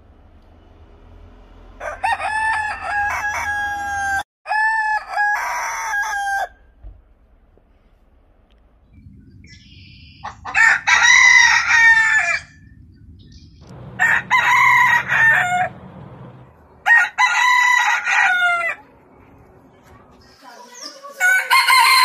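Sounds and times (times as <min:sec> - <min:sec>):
roosters crowing: 0:01.6 - 0:06.8, 0:10.2 - 0:12.8, 0:13.7 - 0:19.1, 0:20.8 - 0:22.0.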